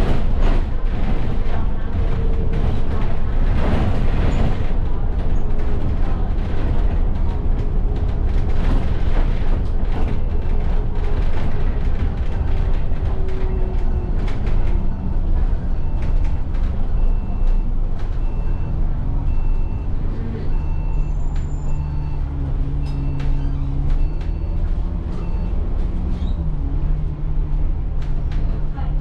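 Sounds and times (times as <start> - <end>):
bus engine drone: 0.0 - 29.0
road noise: 0.0 - 29.0
faint short beep: 16.9 - 25.6.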